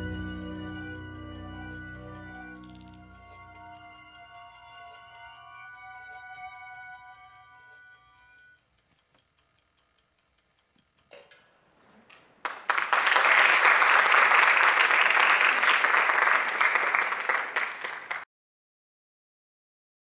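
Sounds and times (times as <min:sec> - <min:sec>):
faint clock-like ticks: 0:00.8 - 0:11.5
audience applauding: 0:12.4 - 0:18.2.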